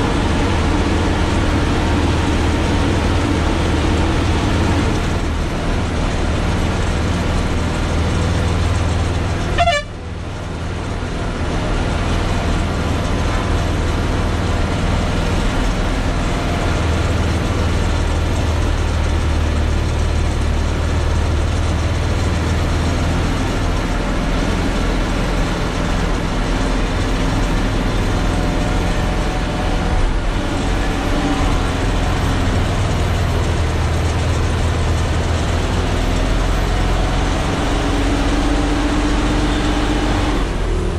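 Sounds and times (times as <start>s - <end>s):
lorry diesel engine: 0.0s - 40.9s
truck horn toot: 9.4s - 10.2s.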